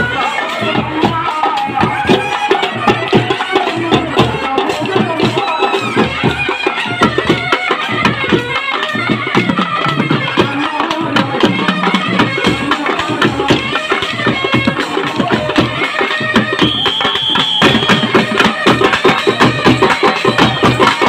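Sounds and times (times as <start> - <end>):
man singing into a microphone: 0.0 - 6.6, 10.2 - 16.3
drum beaten with sticks: 0.0 - 21.0
small hand cymbals: 0.0 - 21.0.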